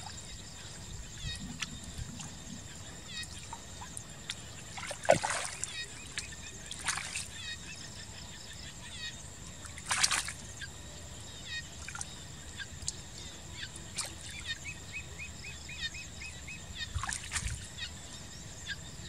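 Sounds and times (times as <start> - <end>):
hands splashing in muddy water: 4.8 - 7.3, 9.8 - 10.4, 17.0 - 17.6.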